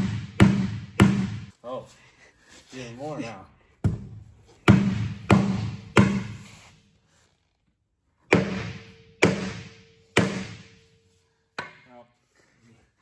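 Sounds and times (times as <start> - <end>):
sledgehammer striking steel rim: 0.0 - 1.5, 8.3 - 10.8.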